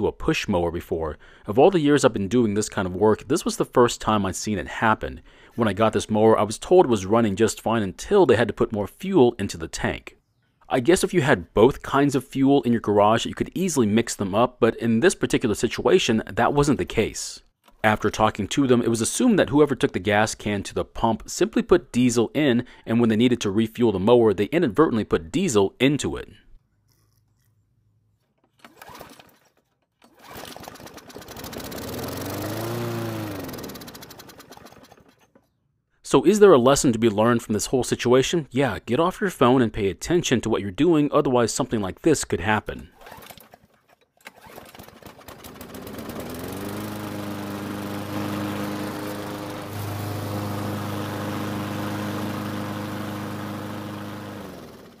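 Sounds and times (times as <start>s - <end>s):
lawn mower engine starting: 28.2s - 35.6s, 42.9s - 55.0s.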